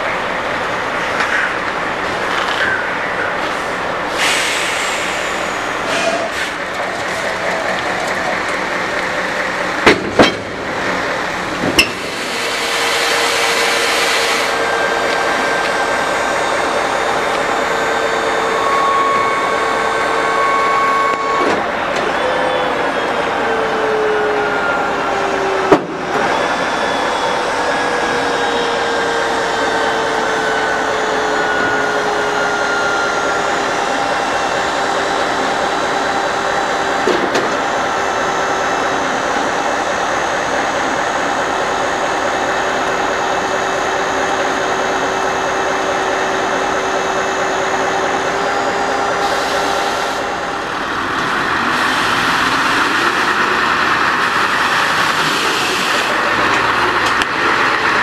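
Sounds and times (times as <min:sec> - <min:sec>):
truck diesel engine idling: 0:00.0 - 0:12.5, 0:14.5 - 0:58.0
hiss: 0:03.5 - 0:06.6, 0:12.0 - 0:14.6, 0:49.2 - 0:50.2.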